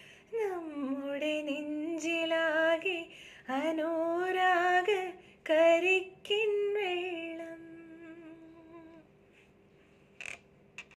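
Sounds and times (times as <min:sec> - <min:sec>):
woman singing unaccompanied: 0:00.3 - 0:09.1.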